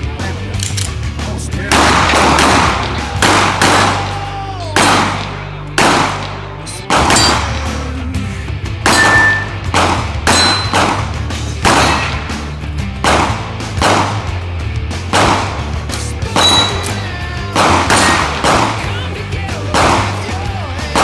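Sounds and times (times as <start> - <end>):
rock music: 0.0 - 21.0
pistol shots: 1.6 - 7.8, 8.8 - 21.0
steel targets clanging: 7.0 - 7.8, 8.8 - 9.7, 10.3 - 10.8, 16.0 - 17.0.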